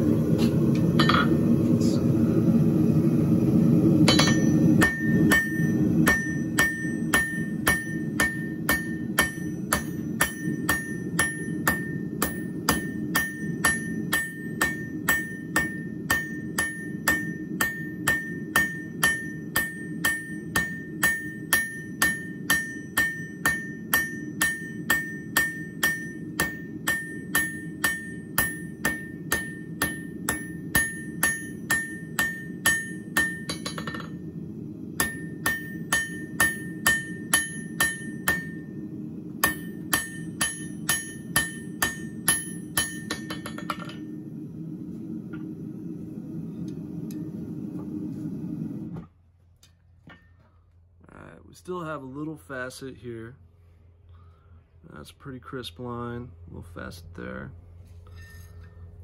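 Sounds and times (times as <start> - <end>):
low rumble: 0.0 - 20.0, 24.2 - 40.3, 43.9 - 48.9
hammer striking steel on anvil: 0.8 - 1.4, 4.0 - 34.4, 35.0 - 44.2, 50.0 - 50.4.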